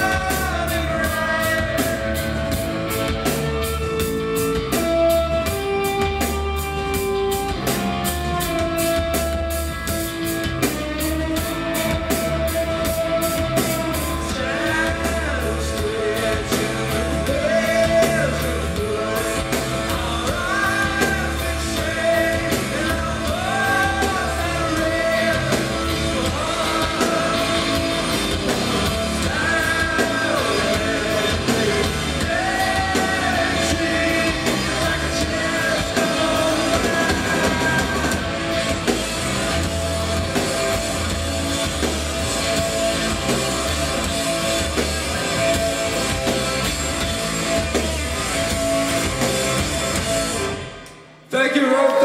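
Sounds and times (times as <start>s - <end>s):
person singing: 0.0s - 2.6s, 11.9s - 28.2s, 28.9s - 38.4s, 51.3s - 52.0s
live rock band playing: 0.0s - 51.3s.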